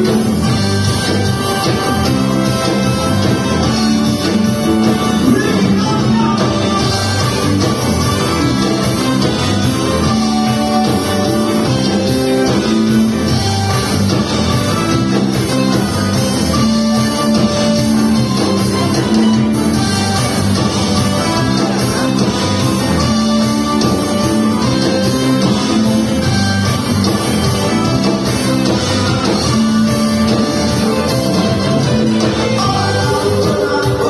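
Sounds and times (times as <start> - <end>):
rock band playing live: 0.0 - 34.0.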